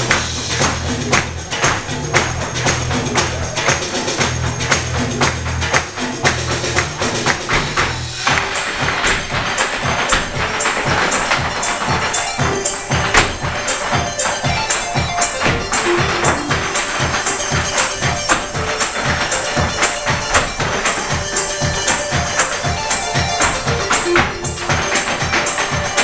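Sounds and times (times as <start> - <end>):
hard-shoe steps clicking on stage: 0.0 - 26.0
lively irish dance music: 0.0 - 26.0.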